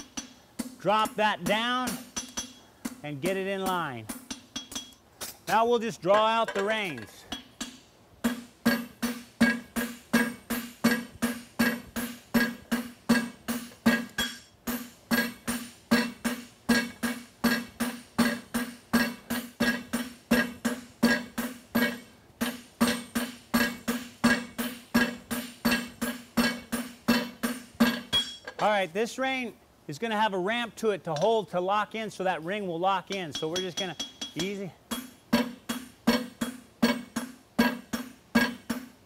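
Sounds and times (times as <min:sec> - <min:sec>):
hammers striking steel on anvil: 0:00.0 - 0:28.7, 0:33.0 - 0:39.0
anvil ringing: 0:03.3 - 0:28.7, 0:33.1 - 0:38.9.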